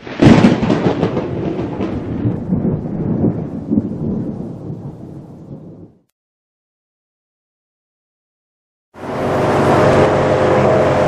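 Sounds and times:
thunderclap and rolling rumble: 0:00.0 - 0:06.1.

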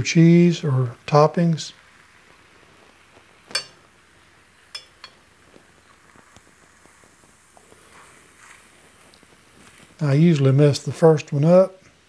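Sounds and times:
metal spatula clinking on skillet: 0:03.5 - 0:03.8, 0:04.7 - 0:05.2.

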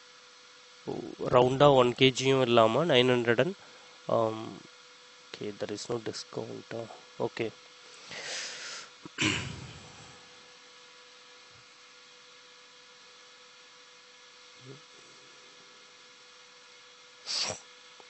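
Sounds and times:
electrical hum: 0:00.0 - 0:18.0
short bursts of noise: 0:17.2 - 0:17.6.

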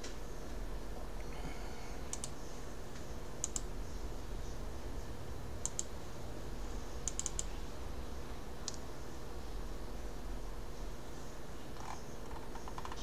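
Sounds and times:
faint electrical hum: 0:00.0 - 0:13.0
computer mouse clicks: 0:02.1 - 0:02.4, 0:03.0 - 0:03.7, 0:05.6 - 0:05.9, 0:07.0 - 0:07.5, 0:08.6 - 0:08.8.

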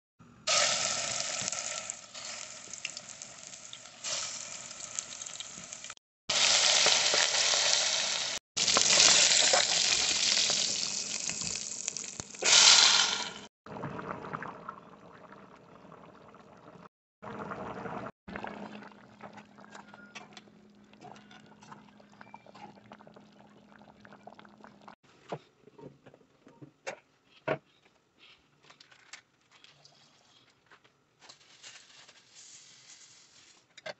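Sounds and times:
meatballs sizzling in pot: 0:00.5 - 0:13.5
sauce simmering and popping: 0:08.6 - 0:13.4.

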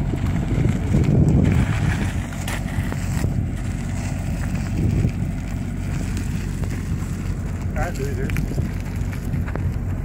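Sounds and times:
wind rumbling on microphone: 0:00.0 - 0:10.0.

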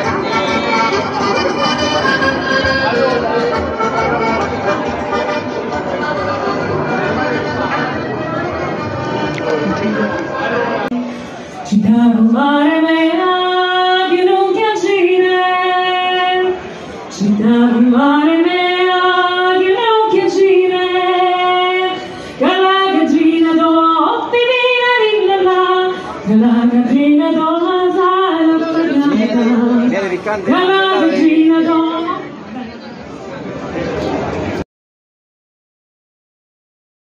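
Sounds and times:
woman singing slow melody: 0:11.7 - 0:29.9.

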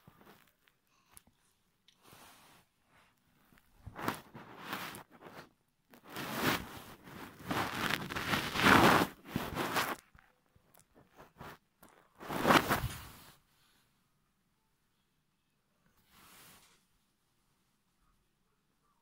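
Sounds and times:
microphone rubbing against fur: 0:03.8 - 0:10.1, 0:12.2 - 0:13.4.

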